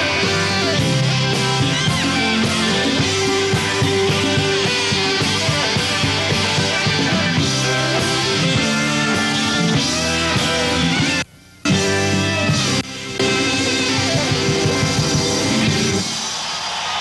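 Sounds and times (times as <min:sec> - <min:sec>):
electric guitars: 0:00.0 - 0:16.6
drums: 0:00.0 - 0:17.0
keyboards: 0:00.0 - 0:17.0.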